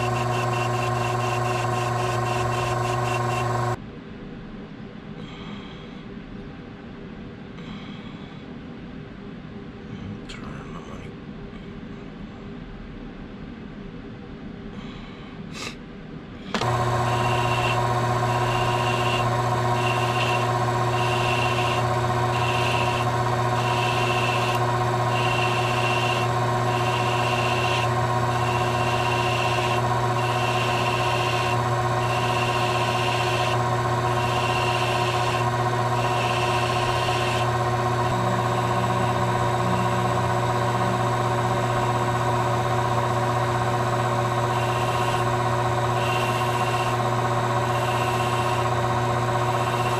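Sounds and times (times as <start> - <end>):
high whine: 0.0 - 3.8, 16.4 - 49.9
metal lathe humming: 0.0 - 3.8, 16.5 - 49.9.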